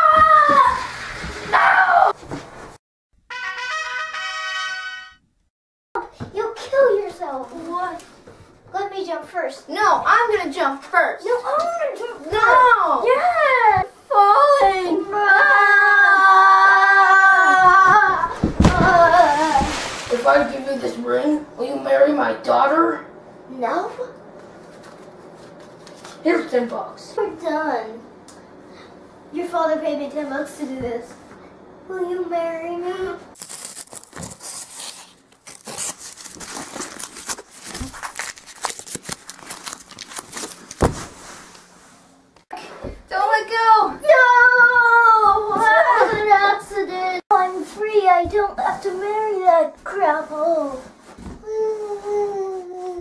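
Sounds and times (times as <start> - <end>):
dull thump: 18.3 - 19.8
wrapper crinkling and tearing: 33.4 - 41.2.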